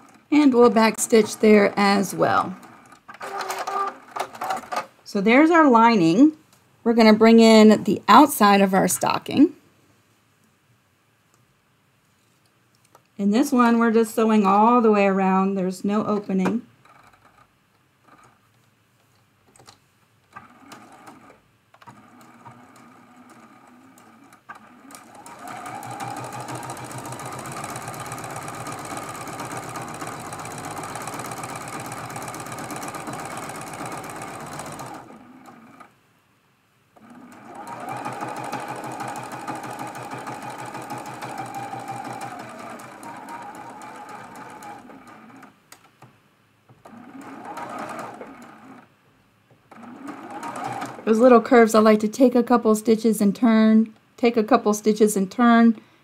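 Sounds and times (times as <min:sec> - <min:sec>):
sewing machine stitching: 0:00.0 - 0:04.9, 0:20.3 - 0:35.9, 0:37.0 - 0:45.6, 0:46.8 - 0:48.9, 0:49.7 - 0:51.4.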